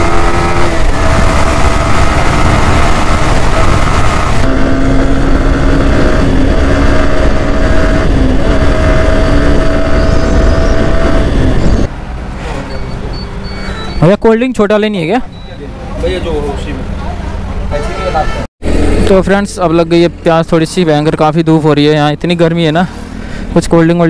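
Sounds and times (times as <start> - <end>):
wind rushing over microphone: 0.0 - 11.9
motorcycle engine cruising: 0.0 - 14.0.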